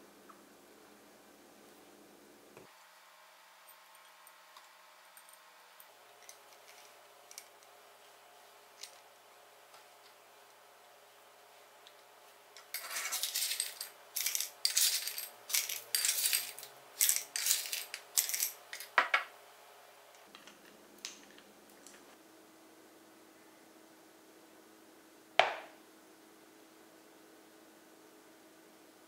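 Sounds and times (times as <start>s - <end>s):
rock sugar clattering into glass jar: 12.7s - 19.0s.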